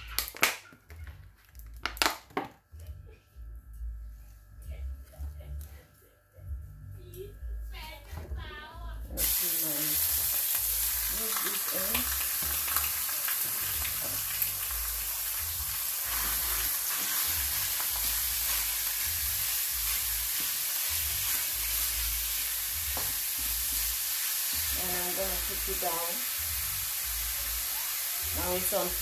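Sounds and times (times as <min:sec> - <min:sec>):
meat sizzling in oil: 0:09.2 - 0:29.0.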